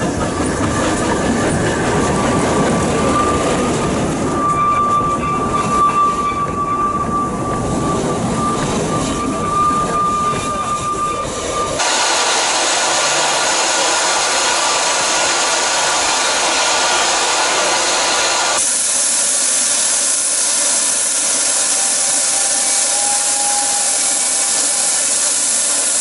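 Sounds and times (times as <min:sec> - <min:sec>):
steam locomotive hissing steam: 0:08.0 - 0:26.0.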